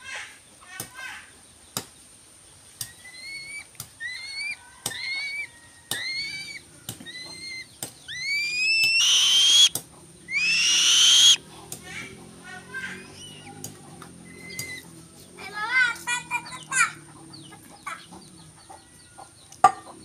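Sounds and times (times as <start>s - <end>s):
bird of prey calling: 2.9s - 11.4s.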